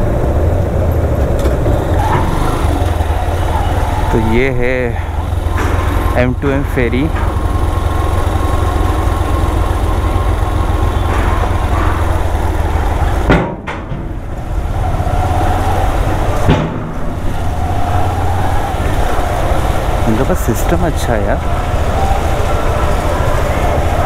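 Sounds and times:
motorcycle engine rumbling: 0:00.0 - 0:24.0
wheels knocking on metal ramp: 0:07.0 - 0:14.4.

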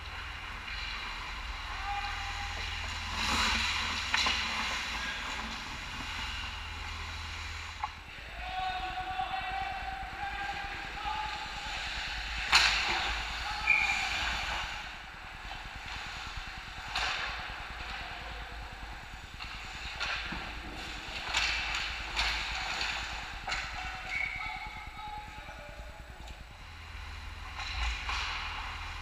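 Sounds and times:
players shouting: 0:08.2 - 0:12.0
hockey sticks clacking on puck: 0:09.6 - 0:14.8, 0:15.8 - 0:25.2, 0:27.5 - 0:29.0.

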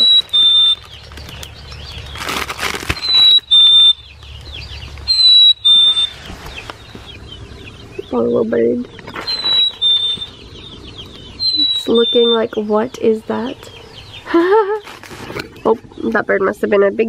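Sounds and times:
plastic bag crinkling: 0:00.0 - 0:03.4
chickadee whistled two-note song: 0:09.3 - 0:10.4, 0:11.4 - 0:12.5.

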